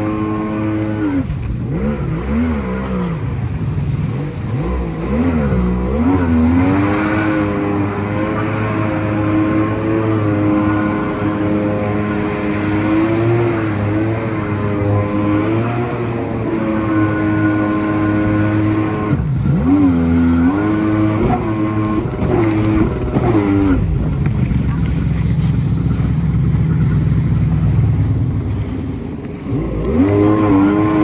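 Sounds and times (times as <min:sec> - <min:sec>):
jet ski engine revving: 0:00.0 - 0:31.0
rushing water and spray: 0:00.0 - 0:31.0.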